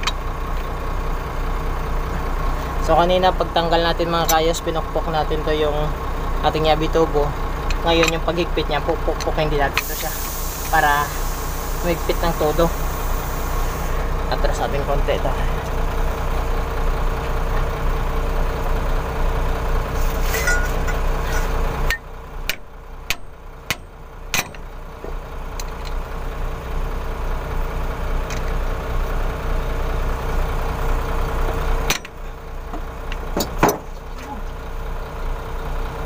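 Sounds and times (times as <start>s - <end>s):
engine running: 0.0s - 36.0s.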